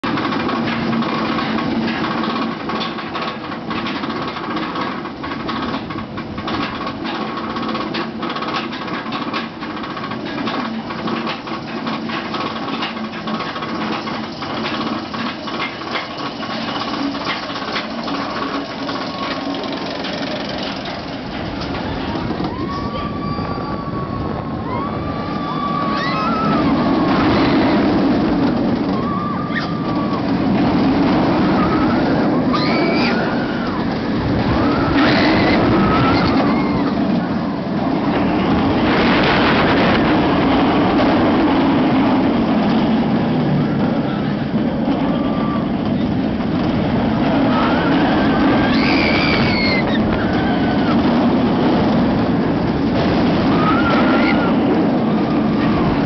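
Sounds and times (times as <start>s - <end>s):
rush of train and wind: 0.0s - 56.0s
steady mechanical hum: 0.0s - 56.0s
riders whooping and yelling: 21.7s - 37.5s, 47.0s - 51.8s, 53.1s - 56.0s.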